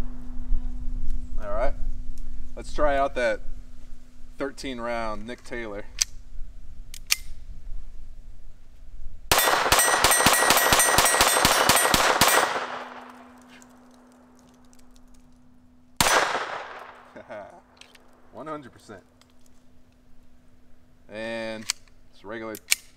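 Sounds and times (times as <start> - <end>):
pistol shots: 9.3 - 14.2, 16.0 - 17.4.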